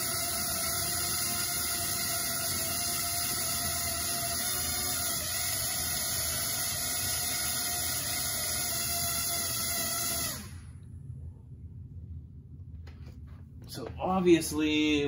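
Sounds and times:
drone propeller motors whining: 0:00.0 - 0:10.8.

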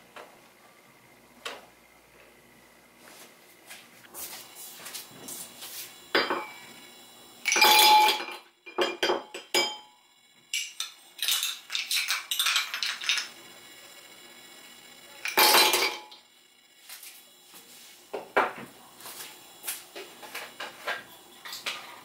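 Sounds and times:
ice cubes clinking in glass: 0:07.5 - 0:09.8, 0:10.5 - 0:13.3, 0:15.2 - 0:16.2.

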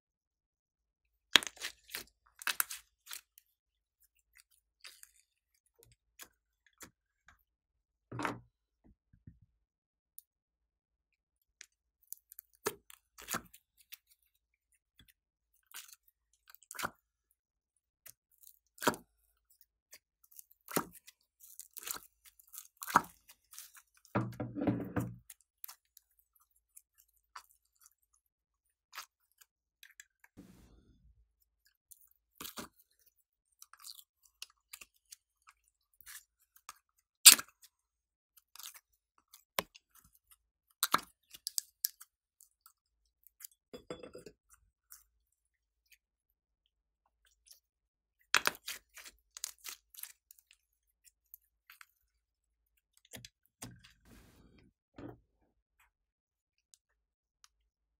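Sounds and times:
slime squelch: 0:01.4 - 0:03.4.

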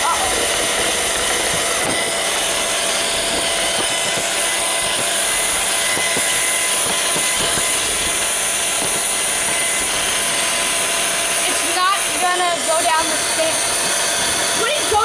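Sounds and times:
robot vacuum whirring hum: 0:00.0 - 0:15.0.

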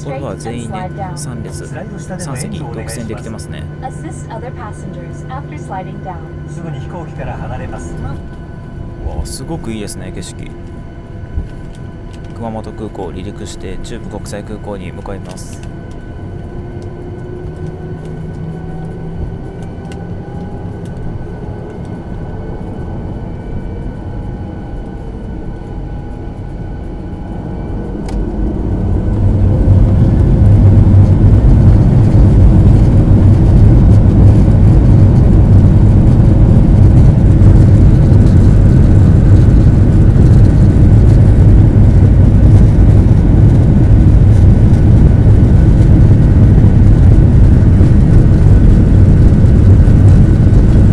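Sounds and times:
jet engines spooling up: 0:00.0 - 0:50.9.

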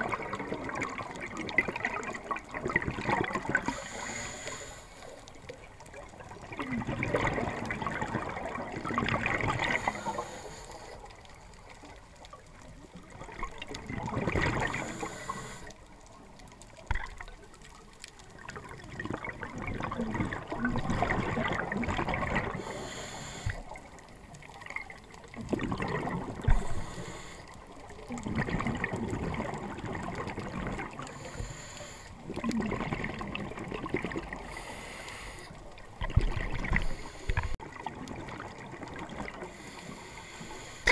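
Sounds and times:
regulator inhale hiss: 0:03.6 - 0:05.3, 0:09.6 - 0:11.2, 0:14.7 - 0:15.8, 0:22.5 - 0:23.8, 0:26.5 - 0:27.7, 0:31.1 - 0:32.2, 0:34.4 - 0:35.7, 0:36.8 - 0:37.6, 0:39.5 - 0:40.9.

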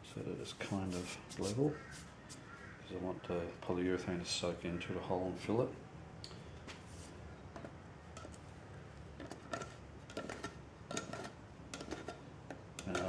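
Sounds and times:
light taps and clicks on tin: 0:12.5 - 0:13.0.

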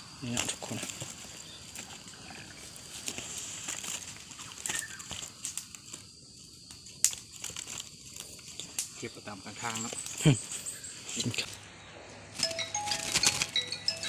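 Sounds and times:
birds fluttering in a cage: 0:00.2 - 0:06.1.

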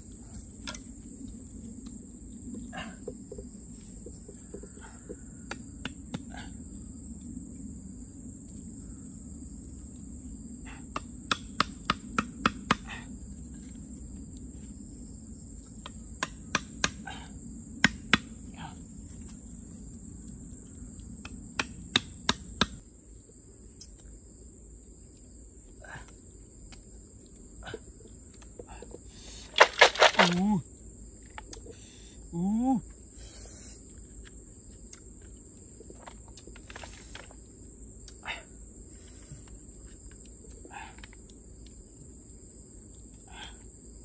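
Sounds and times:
high insect drone: 0:00.0 - 0:44.0
bamboo sticks knocking together: 0:00.3 - 0:01.9, 0:15.8 - 0:17.1, 0:21.1 - 0:22.8, 0:29.5 - 0:30.6.

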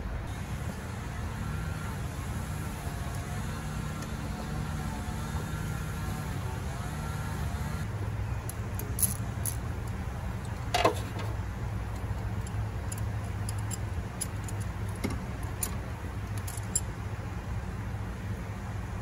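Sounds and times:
steady low hum: 0:00.0 - 0:19.0
metal hand tools clinking: 0:08.8 - 0:09.6, 0:12.4 - 0:16.9.

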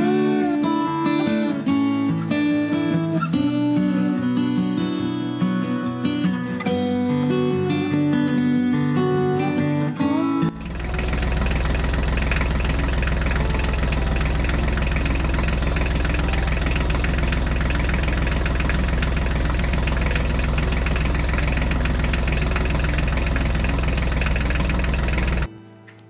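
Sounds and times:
tractor engine idling: 0:10.5 - 0:25.5.

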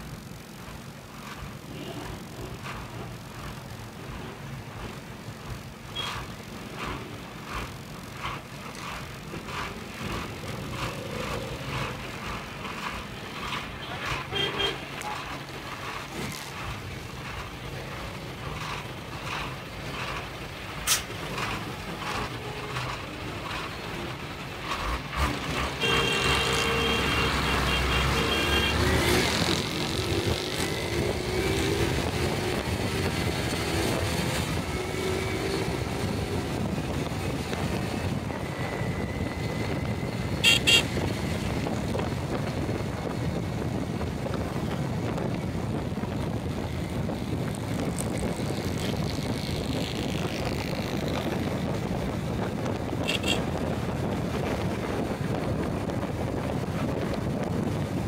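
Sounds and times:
car engines idling: 0:00.0 - 0:28.7
traffic engine and road noise: 0:00.0 - 0:58.0.

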